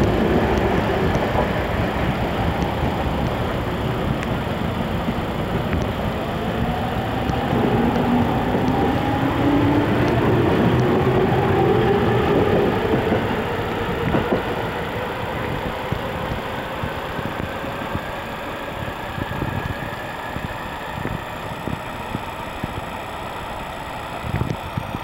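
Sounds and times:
train motor whine: 0:00.0 - 0:25.0
wheels rumbling on rail: 0:00.0 - 0:25.0.

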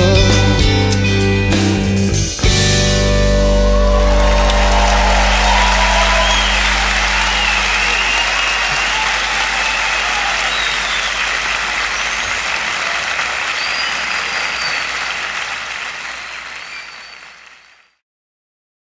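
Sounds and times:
audience applauding: 0:03.5 - 0:18.0
whistles: 0:04.2 - 0:18.0.

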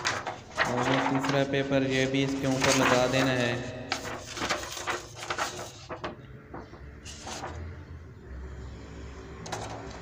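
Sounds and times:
paper rustling and crackling: 0:00.0 - 0:07.7.

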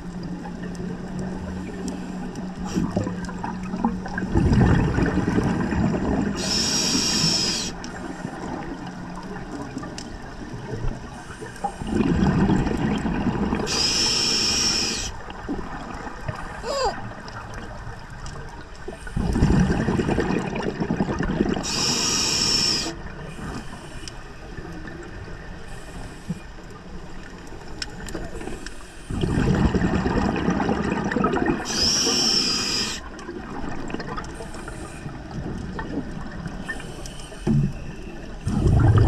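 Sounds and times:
exhaled bubbles rushing: 0:02.7 - 0:06.5, 0:11.8 - 0:13.7, 0:19.1 - 0:21.6, 0:29.1 - 0:32.2, 0:33.1 - 0:34.3, 0:35.2 - 0:36.6, 0:38.4 - 0:39.0
regulator hiss and whistle: 0:06.4 - 0:07.8, 0:13.7 - 0:15.2, 0:21.6 - 0:23.0, 0:31.7 - 0:33.0.

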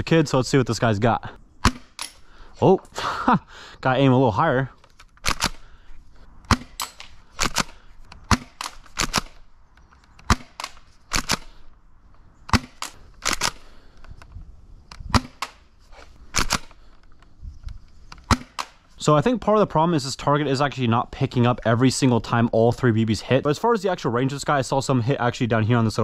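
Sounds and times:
airsoft shotgun shot snaps: 0:15.1 - 0:15.6.

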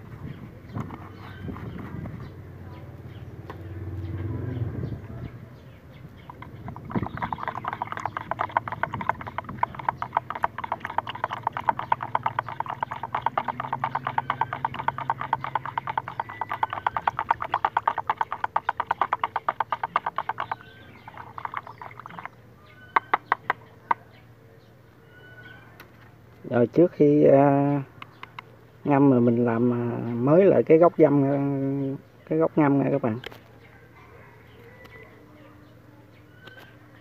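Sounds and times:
animal calling in clicking trill: 0:06.3 - 0:24.0, 0:36.4 - 0:36.8.

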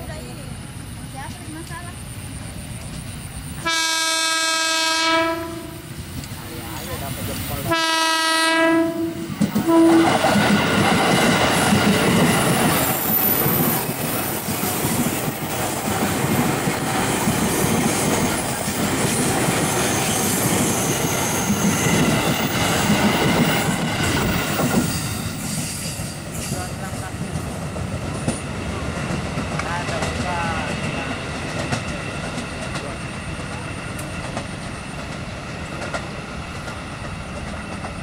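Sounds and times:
train wheels rumbling on rails: 0:00.0 - 0:38.0
train horn: 0:03.6 - 0:06.0, 0:07.6 - 0:10.4.

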